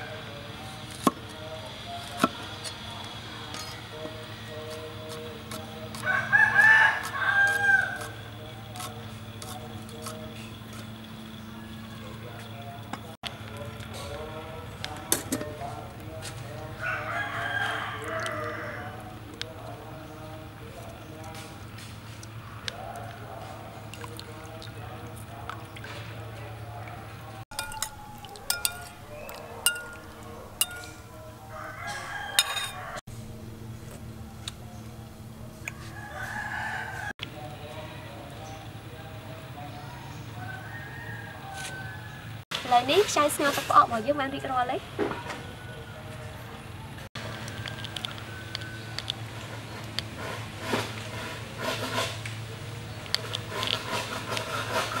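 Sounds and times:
rooster crowing: 6.0s - 8.2s, 16.8s - 19.1s, 27.8s - 33.0s, 35.6s - 37.1s, 40.0s - 42.4s, 47.2s - 49.2s
spoon clinking against bowl: 27.5s - 31.1s, 32.4s - 32.9s.

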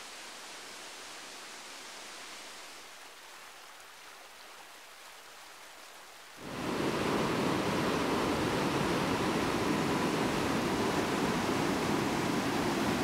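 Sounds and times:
stream rippling over stones: 0.0s - 13.0s
whitewater rushing through gorge: 6.4s - 13.0s.

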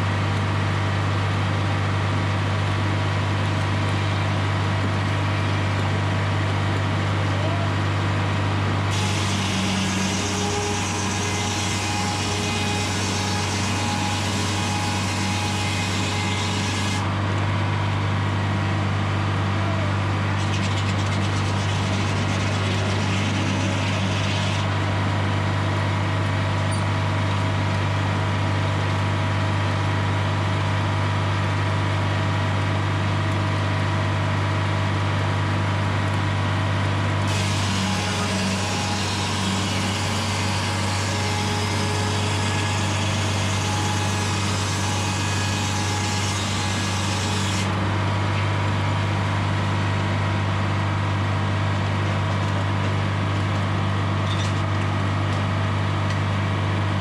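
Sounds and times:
diesel engine running: 17.0s - 37.3s.

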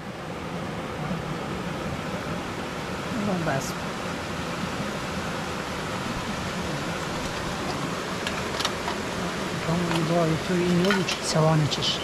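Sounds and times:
steady rushing noise: 0.0s - 12.0s.

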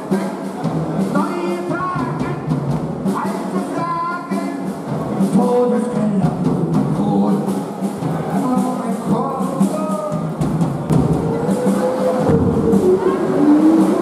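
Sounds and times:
drums and cymbal hits: 0.0s - 14.0s
man singing through a microphone: 3.2s - 4.7s.

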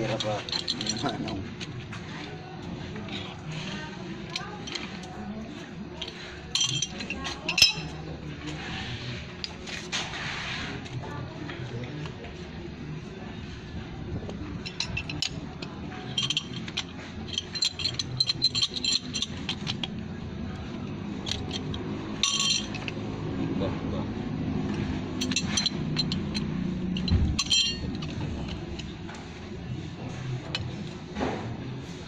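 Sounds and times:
metallic clinks of wrench on pipe: 6.0s - 8.0s, 14.6s - 19.9s, 21.2s - 23.0s, 25.2s - 28.9s.

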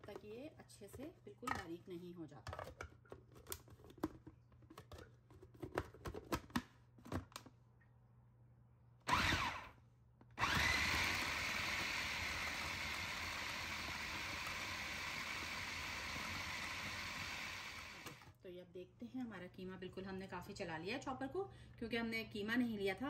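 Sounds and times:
electric food chopper running: 9.1s - 9.7s, 10.4s - 18.3s.

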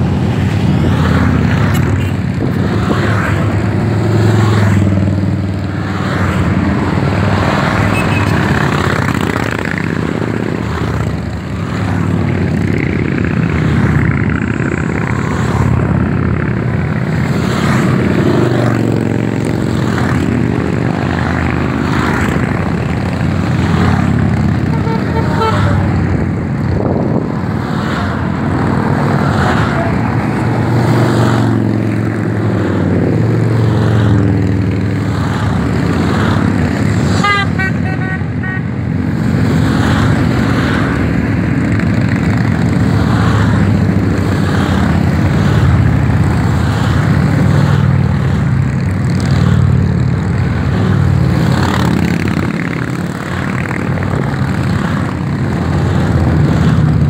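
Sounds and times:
motorcycles riding past: 0.0s - 57.0s
horn tooting: 7.8s - 8.4s, 24.6s - 26.1s, 37.1s - 38.8s.

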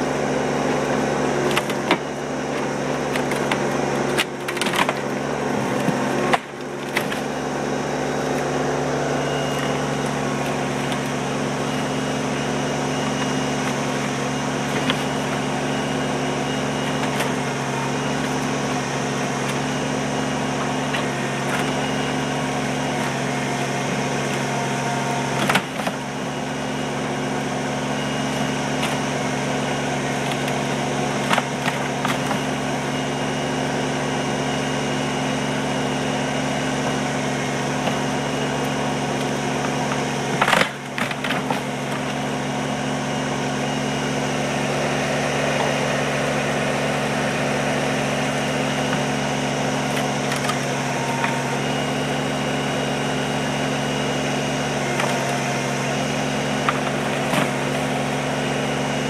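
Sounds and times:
tractor diesel engine running: 0.0s - 59.0s
wood cracking and splintering: 0.6s - 33.0s, 36.5s - 42.6s, 47.8s - 52.4s, 54.7s - 58.7s.

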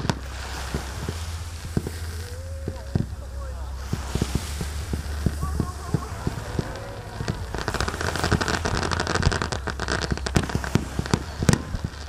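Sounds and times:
fireworks bangs: 0.0s - 12.0s
fireworks crackling: 0.0s - 12.0s.

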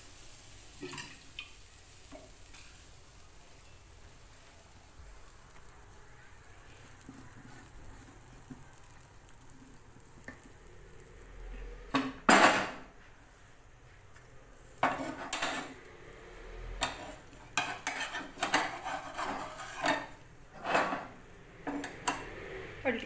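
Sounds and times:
metal pots clattering: 14.8s - 15.8s, 16.8s - 22.3s.

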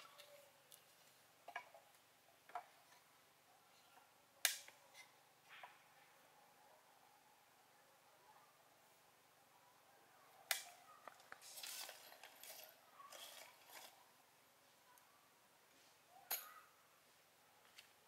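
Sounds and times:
short scrapes and rustles: 11.4s - 14.0s.

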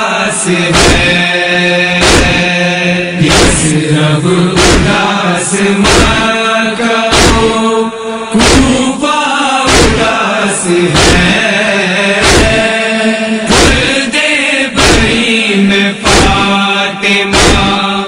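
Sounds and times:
voices chanting mournful refrain: 0.0s - 18.0s
heavy rhythmic thumps: 0.6s - 3.8s, 4.5s - 6.4s, 7.0s - 7.7s, 8.3s - 9.0s, 9.7s - 10.3s, 10.9s - 18.0s.

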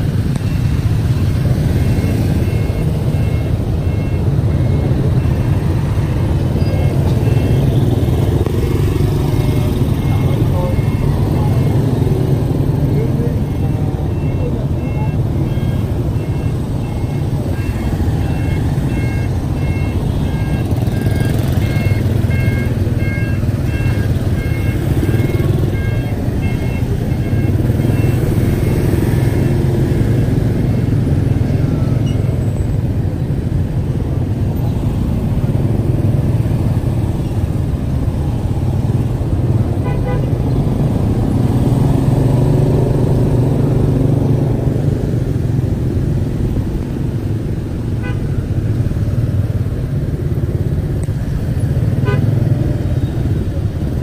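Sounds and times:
car engine and road rumble: 0.0s - 54.0s
repeating electronic beep: 0.4s - 30.5s
car horn toot: 39.8s - 40.4s, 48.0s - 48.3s, 52.0s - 52.4s.

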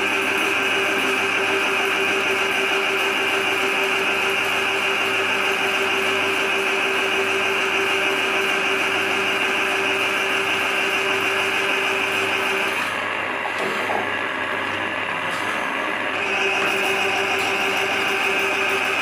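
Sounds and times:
drain machine motor whine: 0.0s - 19.0s.

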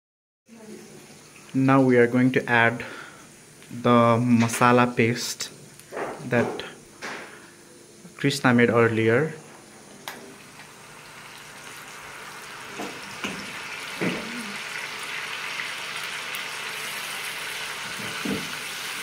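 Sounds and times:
curry sizzling in a wok: 0.5s - 2.2s, 9.4s - 19.0s
utensils knocking on pan: 12.8s - 14.3s, 18.0s - 18.5s.

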